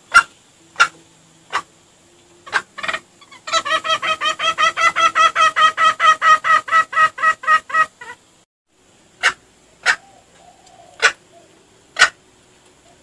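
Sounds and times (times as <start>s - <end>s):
fast clucking: 2.5s - 8.2s.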